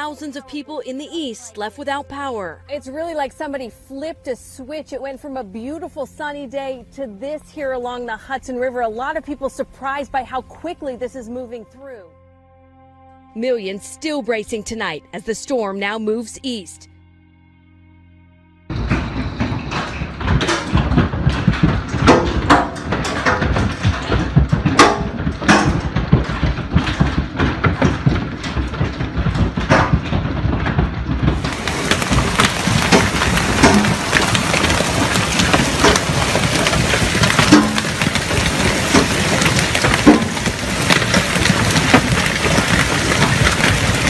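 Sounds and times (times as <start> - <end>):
hail pelting down: 18.7 - 44.0
sharp cracks of hailstones: 18.7 - 44.0.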